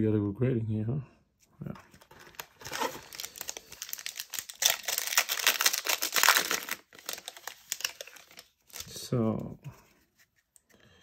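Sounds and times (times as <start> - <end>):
foil wrapper crinkling: 2.0 - 9.0.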